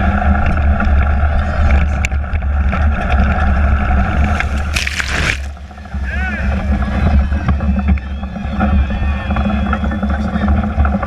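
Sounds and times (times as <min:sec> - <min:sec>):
machine rumbling and rattling: 0:00.0 - 0:11.0
water splashing: 0:03.7 - 0:07.0.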